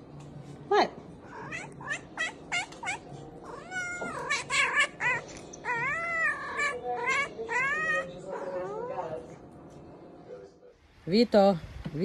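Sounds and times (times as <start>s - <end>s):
cat meowing: 1.2s - 8.9s.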